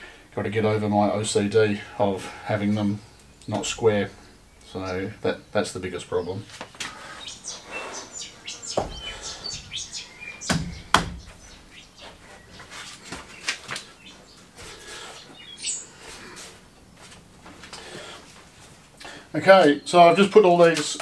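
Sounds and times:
heavy batteries knocking and clinking: 0:10.4 - 0:11.5.

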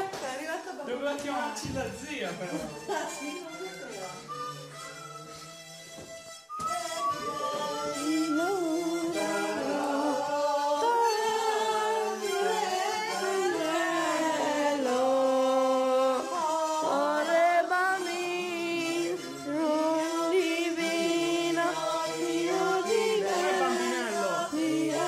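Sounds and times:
voices singing in harmony: 0:06.6 - 0:25.0.

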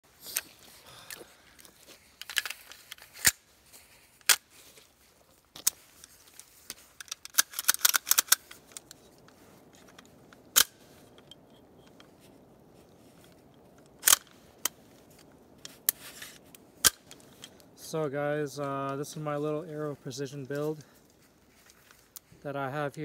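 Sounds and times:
gun handling clicks and clacks: 0:00.2 - 0:04.9, 0:05.5 - 0:17.8.

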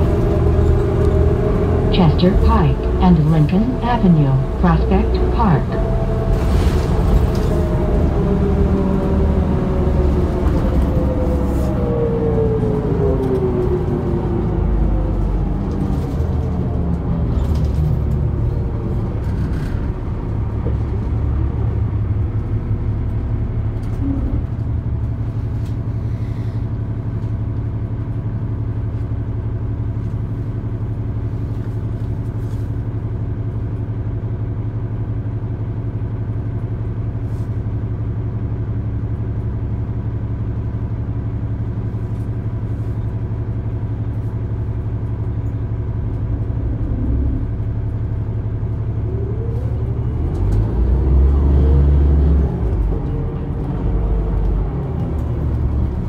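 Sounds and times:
diesel engine idling: 0:00.0 - 0:32.2
bus engine and driveline whine: 0:00.0 - 0:56.0.

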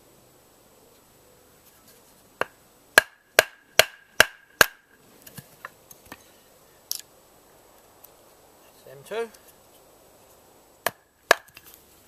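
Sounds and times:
mallet striking axe head: 0:03.0 - 0:04.8, 0:10.8 - 0:11.6.

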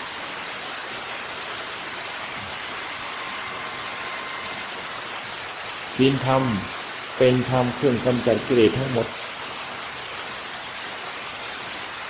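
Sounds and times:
background hiss: 0:00.0 - 0:12.0.

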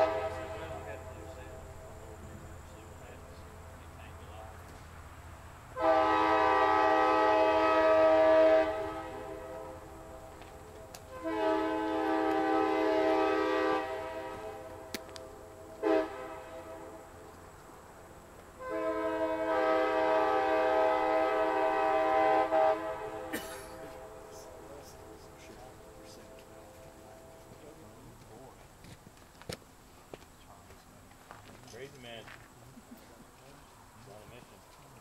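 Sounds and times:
locomotive horn blasts: 0:00.0 - 0:01.5, 0:05.8 - 0:17.2, 0:18.6 - 0:27.6.

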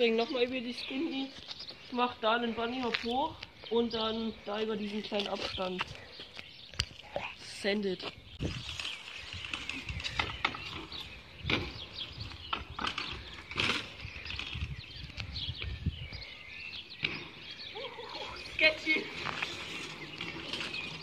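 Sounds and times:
birds chirping: 0:00.0 - 0:21.0
bike tyres rolling on concrete: 0:08.0 - 0:15.8, 0:16.7 - 0:21.0.

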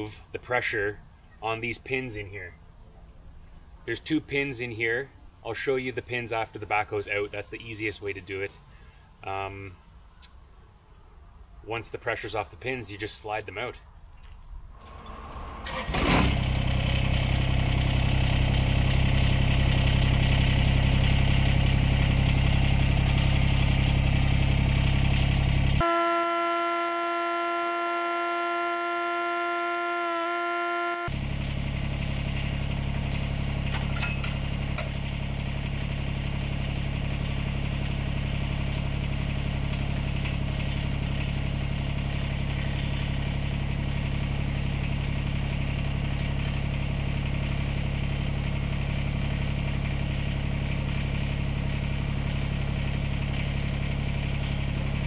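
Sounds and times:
tractor diesel engine running: 0:14.8 - 0:55.0
high-pitched whine: 0:25.8 - 0:31.2.

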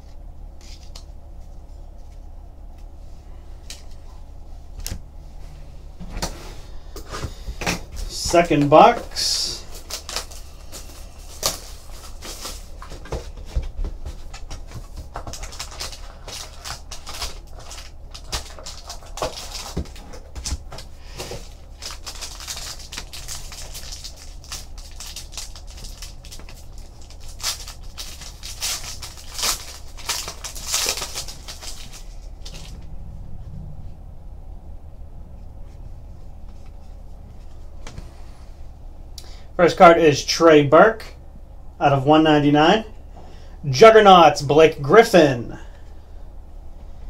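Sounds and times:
foil wrapper crinkling: 0:08.0 - 0:32.7.

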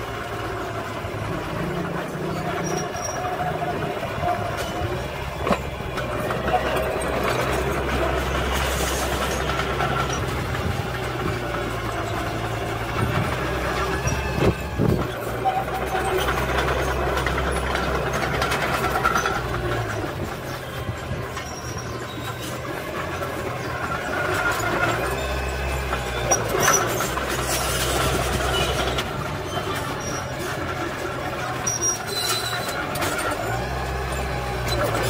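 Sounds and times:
bulldozer diesel engine: 0:00.0 - 0:35.0
steel tracks squeaking and clattering: 0:00.0 - 0:35.0.

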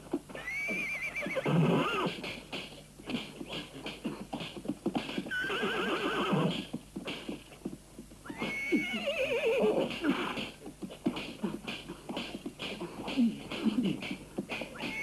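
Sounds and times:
hooves clattering: 0:00.0 - 0:15.0
horses whinnying: 0:00.3 - 0:02.2, 0:05.1 - 0:06.7, 0:08.2 - 0:10.6, 0:14.6 - 0:15.0.

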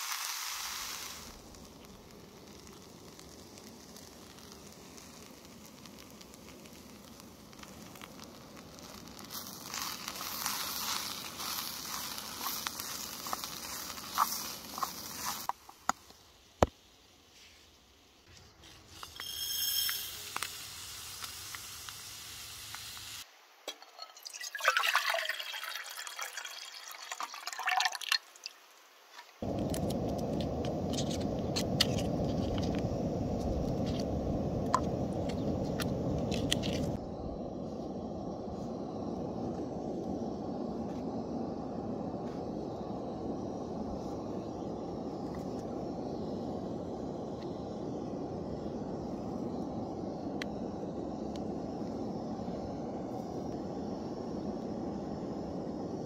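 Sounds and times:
gas stove hissing: 0:00.0 - 0:17.5, 0:18.2 - 0:23.3, 0:29.4 - 0:56.0.

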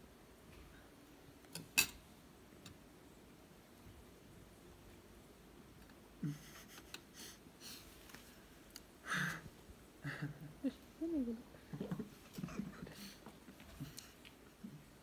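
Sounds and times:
person murmuring: 0:06.2 - 0:06.8, 0:10.0 - 0:13.2
person humming: 0:10.0 - 0:13.0.

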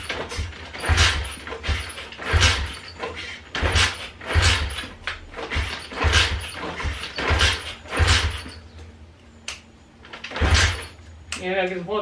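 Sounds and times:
motorbike engine kick-started: 0:00.0 - 0:08.6, 0:10.0 - 0:11.0.

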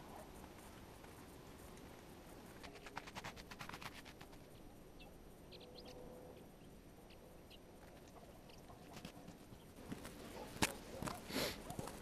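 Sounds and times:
songbirds chirping: 0:04.2 - 0:12.0.

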